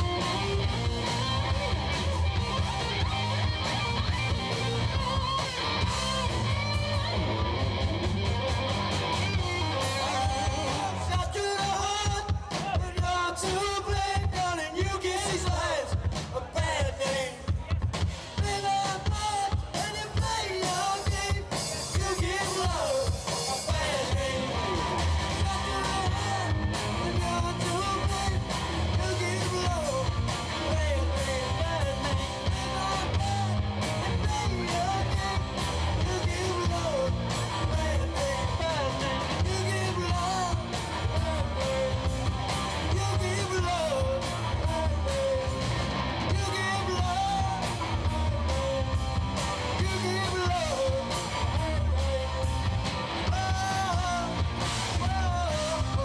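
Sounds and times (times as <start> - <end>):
rock band playing: 0.0 - 56.0
lead vocal singing: 9.0 - 56.0.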